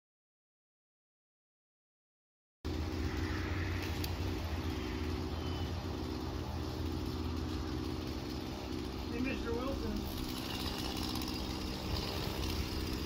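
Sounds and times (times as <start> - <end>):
engine idling: 2.7 - 13.0.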